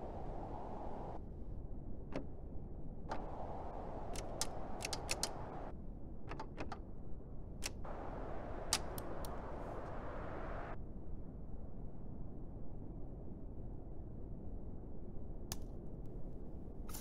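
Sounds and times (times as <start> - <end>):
steady low hiss: 3.1 - 5.7, 7.6 - 10.8.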